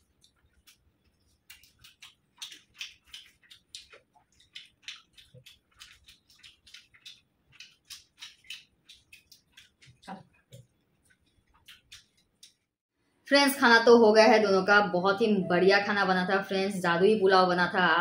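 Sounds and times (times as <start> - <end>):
chewing and mouth clicks: 0.0 - 12.7.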